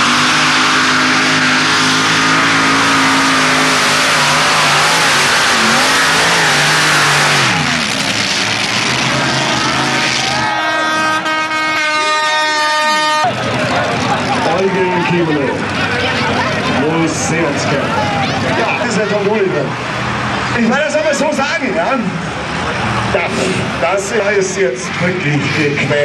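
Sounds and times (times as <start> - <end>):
tractor engine at full throttle: 0.0 - 26.0
horn sounding: 9.2 - 13.5.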